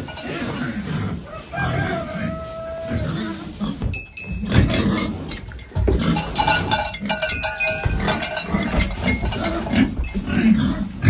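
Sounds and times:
livestock calling: 0.0s - 3.9s
dry hay rustling and crackling: 0.0s - 11.0s.

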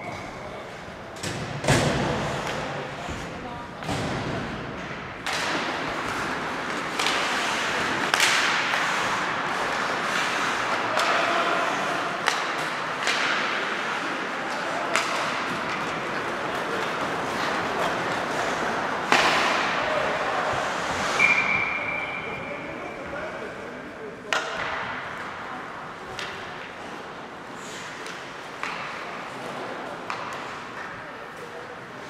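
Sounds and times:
skates scraping on ice: 1.7s - 3.4s, 5.2s - 21.8s, 24.7s - 32.0s
hockey sticks cracking on puck: 3.8s - 21.4s, 24.3s - 31.9s
referee's whistle: 21.2s - 22.4s.

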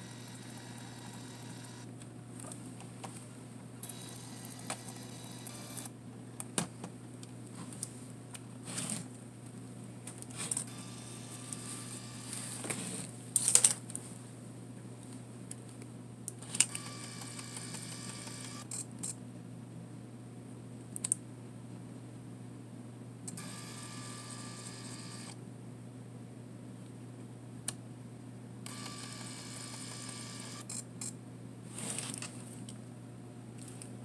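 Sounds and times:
camera lens motor whirring: 0.0s - 1.9s, 3.8s - 5.9s, 10.4s - 12.6s, 16.4s - 18.8s, 23.3s - 25.4s, 28.7s - 30.8s
camera clicks: 16.4s - 19.2s.

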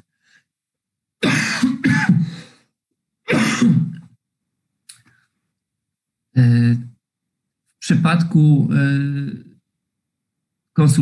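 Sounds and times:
man clearing throat and coughing: 1.2s - 2.5s, 3.3s - 4.2s.

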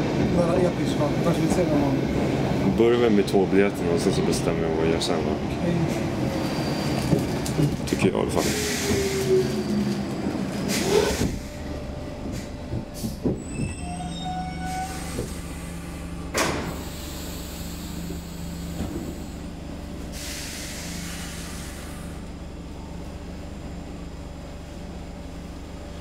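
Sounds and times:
train running gear rumble: 0.0s - 26.0s
faint wheel squeals: 6.4s - 7.2s, 13.4s - 15.2s.

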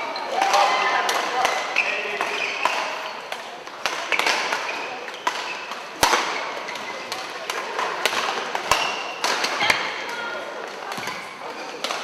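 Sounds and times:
rackets striking shuttlecock: 0.4s - 10.0s
shoes squeaking on court: 1.6s - 3.3s, 4.1s - 7.2s.

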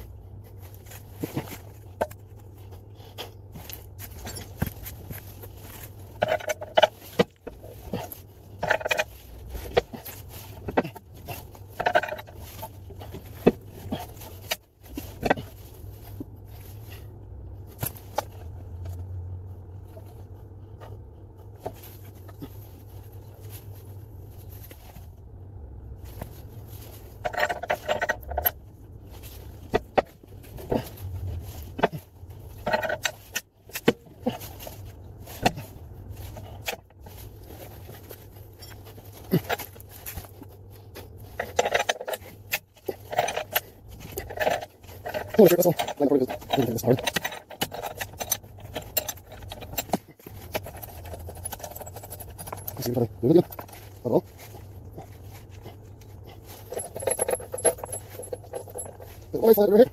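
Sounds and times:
steady low hum: 0.0s - 59.9s
metallic clinks of spanner: 41.4s - 53.8s, 56.5s - 59.7s.

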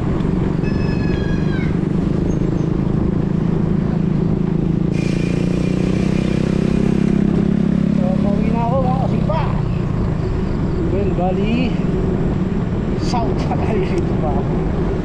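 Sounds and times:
low rumble of traffic: 0.0s - 15.0s
hiss: 4.9s - 6.2s.

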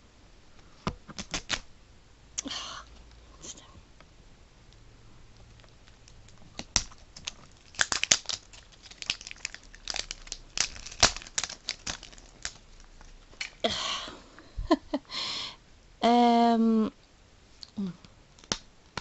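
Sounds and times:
plastic wrap crackling: 5.4s - 13.7s
plastic rustling: 5.5s - 13.7s.

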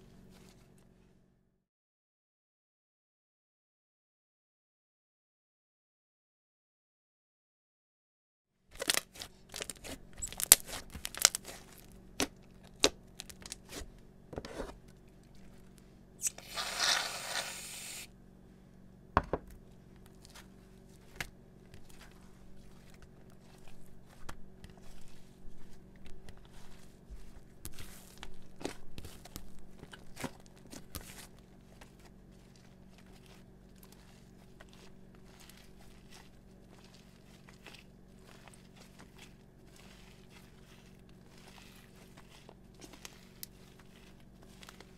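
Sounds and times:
hiss: 16.2s - 18.1s.

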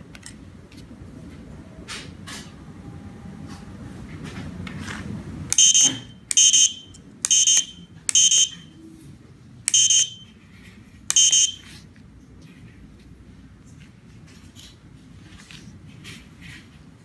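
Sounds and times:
short high-pitched buzzer beeps: 5.6s - 8.7s, 9.7s - 10.4s, 11.1s - 11.7s.

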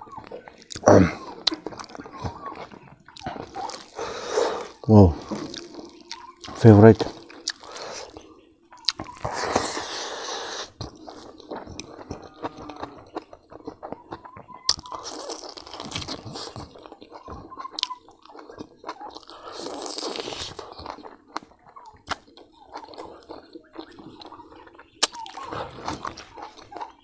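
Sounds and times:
person chewing food: 0.0s - 27.0s
lip smacks: 0.2s - 27.0s.

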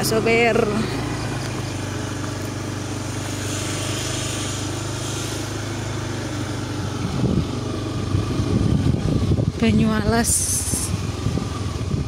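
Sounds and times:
motorcycle engine running: 0.0s - 12.0s
road and wind noise: 0.0s - 12.0s
wind buffeting microphone: 6.6s - 12.0s.

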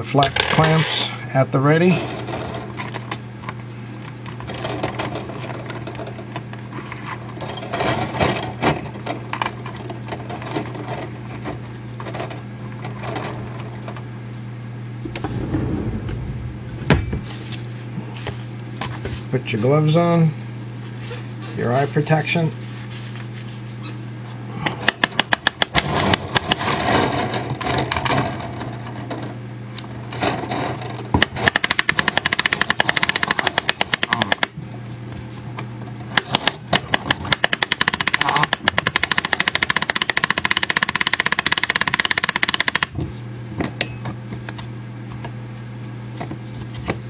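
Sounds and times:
steady low hum: 0.0s - 47.0s
ratchet clicking rapidly: 31.4s - 34.5s, 36.2s - 42.9s.

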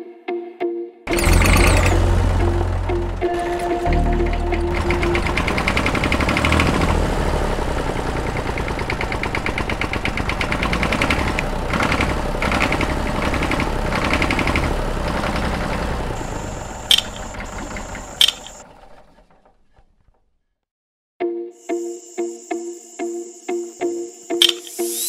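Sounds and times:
small engine popping: 1.1s - 20.3s
sharp clicks: 16.8s - 18.6s, 24.4s - 24.8s.

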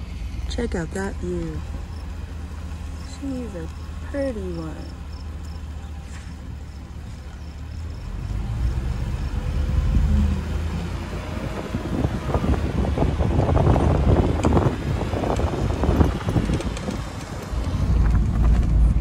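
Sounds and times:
car engine and road rumble: 0.0s - 19.0s
wind on microphone: 9.6s - 19.0s.

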